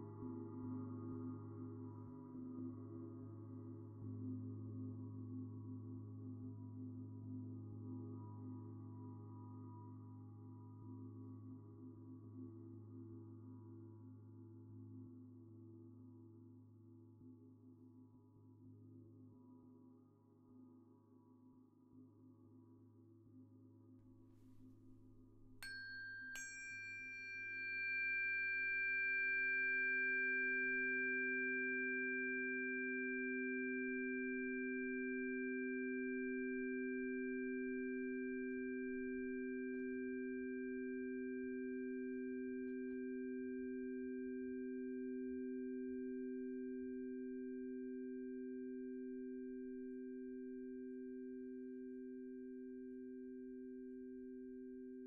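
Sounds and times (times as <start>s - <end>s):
singing bowls ringing: 25.5s - 32.0s.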